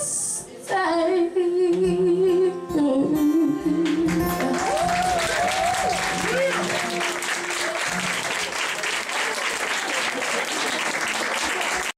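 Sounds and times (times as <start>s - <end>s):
woman singing long notes: 0.0s - 6.0s
guitar accompaniment: 0.0s - 8.8s
audience applause: 4.1s - 11.9s
audience whistling: 4.6s - 10.8s.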